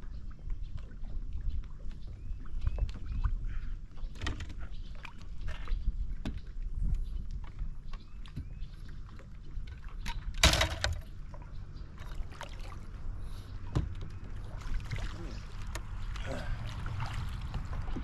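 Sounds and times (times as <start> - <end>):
wind rumble on microphone: 0.0 - 11.9, 12.9 - 18.0
water splashing: 12.0 - 18.0.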